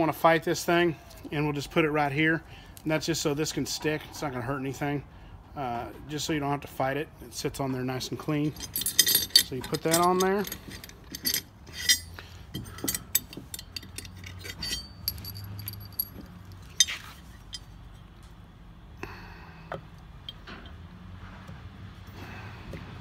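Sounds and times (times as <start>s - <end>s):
metal cover clicks and clinks: 8.6s - 16.2s.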